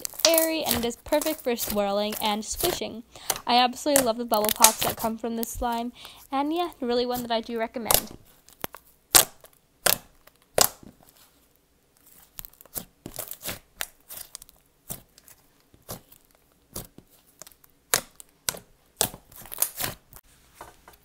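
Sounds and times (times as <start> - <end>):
sizzly crackle of slime: 0.0 - 21.0.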